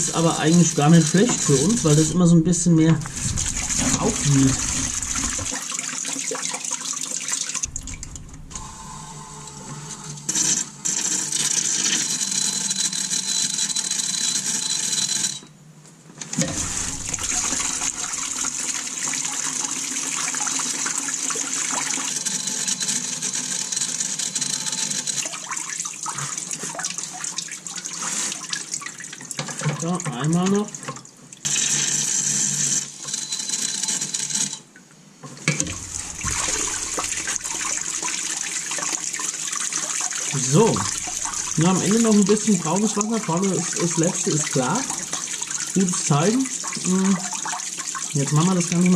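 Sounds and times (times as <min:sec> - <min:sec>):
water pouring in a steady stream: 0:03.0 - 0:08.8, 0:16.4 - 0:23.3, 0:25.2 - 0:32.2, 0:35.7 - 0:48.9.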